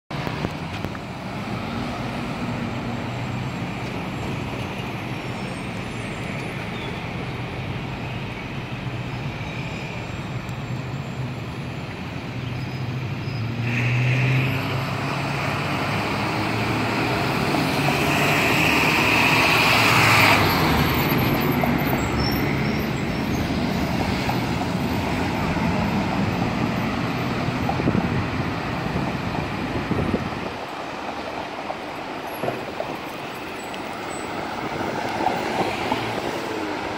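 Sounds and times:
street traffic engine hum: 0:00.1 - 0:36.9
high squeal: 0:18.0 - 0:24.0.

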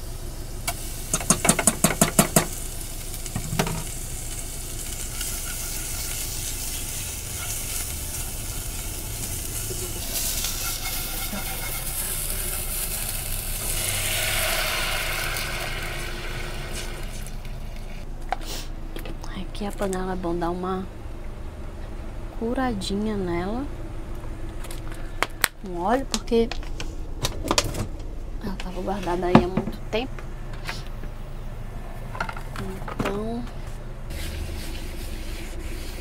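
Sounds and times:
onion and garlic sizzling: 0:00.0 - 0:18.1, 0:34.1 - 0:36.0.

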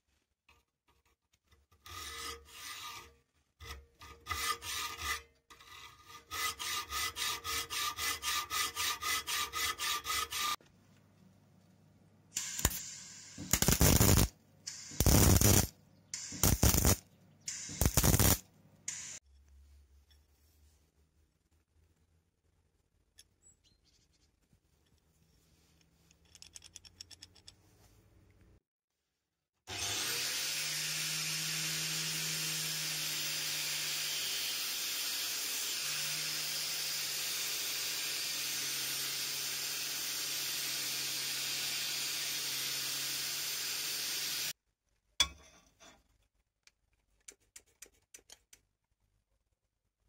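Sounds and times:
angle grinder cutting steel: 0:02.0 - 0:10.6, 0:12.4 - 0:19.2, 0:29.7 - 0:44.6
sharp clicks: 0:12.4 - 0:19.2.

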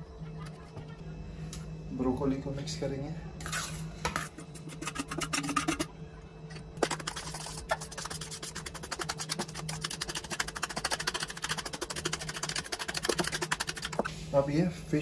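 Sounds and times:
utensil scraping metal bowl: 0:03.5 - 0:05.9, 0:06.8 - 0:14.1.

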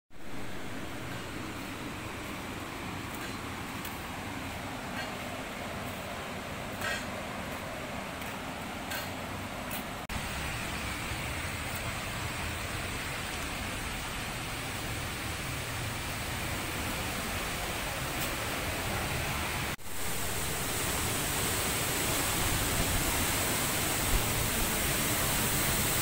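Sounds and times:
waterfall rushing: 0:09.5 - 0:26.0.

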